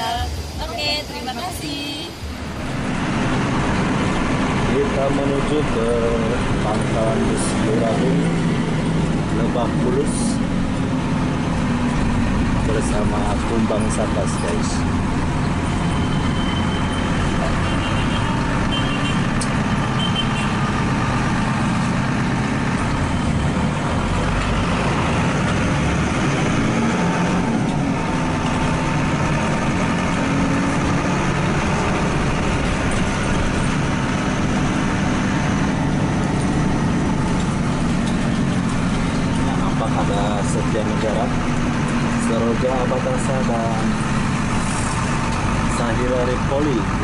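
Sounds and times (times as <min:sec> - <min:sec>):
bus engine droning: 0:00.0 - 0:47.0
road noise: 0:00.0 - 0:47.0.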